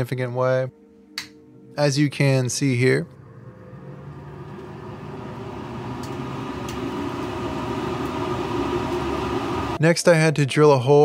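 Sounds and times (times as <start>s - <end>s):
duct fan humming: 2.3s - 9.8s
air rushing through ducting: 3.2s - 9.8s.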